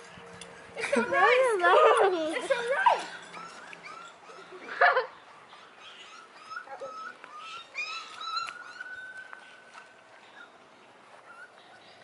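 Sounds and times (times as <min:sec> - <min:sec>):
puppy whining: 0:01.7 - 0:09.4, 0:11.2 - 0:12.0
puppy whimpering and yipping: 0:02.7 - 0:09.4, 0:11.2 - 0:11.9
puppy squealing: 0:02.8 - 0:05.0, 0:05.6 - 0:09.3.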